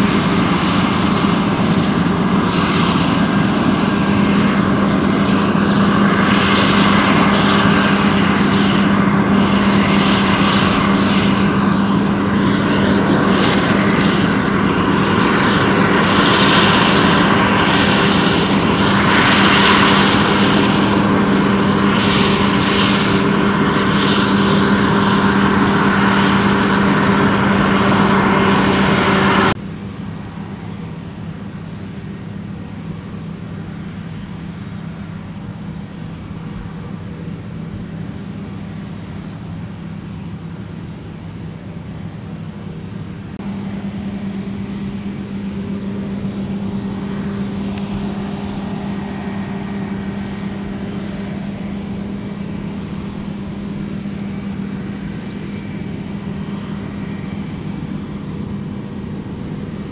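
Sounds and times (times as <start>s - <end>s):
combine harvester drone: 0.0s - 59.9s.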